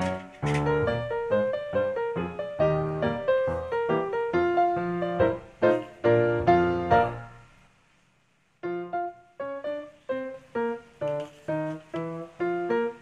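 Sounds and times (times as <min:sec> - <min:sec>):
keyboard music run of notes: 0:00.0 - 0:07.5.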